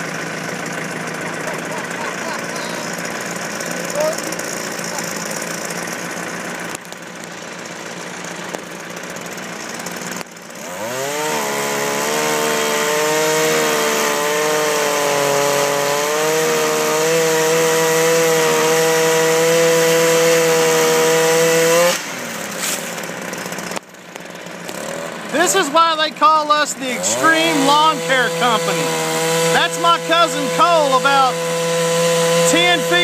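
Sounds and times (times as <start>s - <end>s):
tractor engine idling: 0.0s - 11.1s, 22.0s - 31.7s
chainsaw revving: 0.0s - 33.0s.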